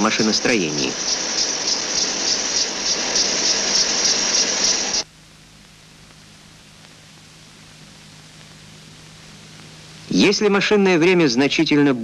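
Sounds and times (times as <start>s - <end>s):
faint soundtrack hiss: 0.0s - 12.0s
low steady hum: 0.0s - 12.0s.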